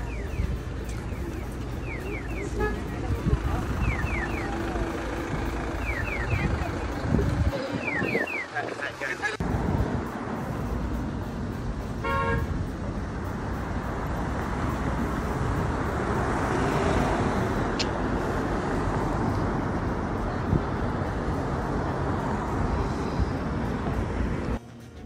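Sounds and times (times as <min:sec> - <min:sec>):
city traffic rumble: 0:00.0 - 0:25.0
vehicle horn toot: 0:02.0 - 0:06.8, 0:12.0 - 0:12.6.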